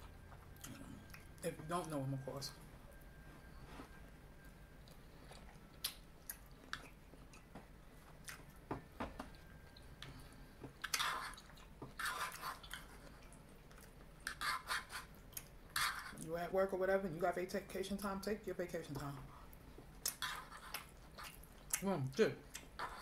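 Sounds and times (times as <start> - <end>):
chewing food: 0.0 - 1.9, 4.4 - 16.3, 18.9 - 23.0.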